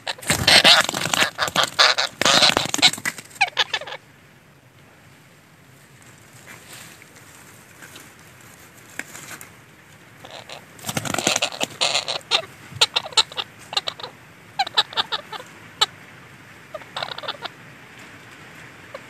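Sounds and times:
parakeets high calls: 0.0s - 4.0s, 10.2s - 16.0s, 16.7s - 17.6s.

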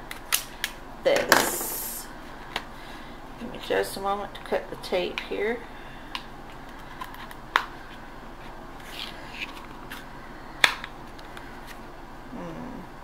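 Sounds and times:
packaging rustling: 6.5s - 10.1s.

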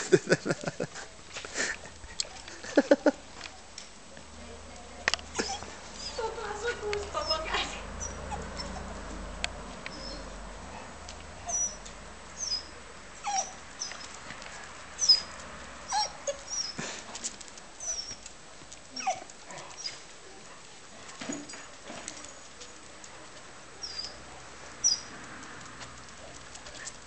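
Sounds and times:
dogs whining and yipping: 5.3s - 8.9s, 9.9s - 10.4s, 11.4s - 14.2s, 15.0s - 16.8s, 17.8s - 18.3s, 19.0s - 20.1s, 23.8s - 24.2s, 24.8s - 25.1s.

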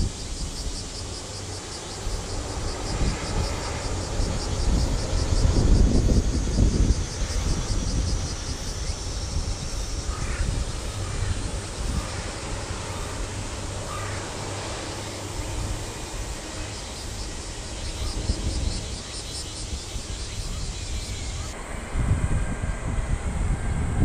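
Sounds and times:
wind rumble on microphone: 0.0s - 24.0s
crow cawing: 10.1s - 11.4s, 13.8s - 14.4s.

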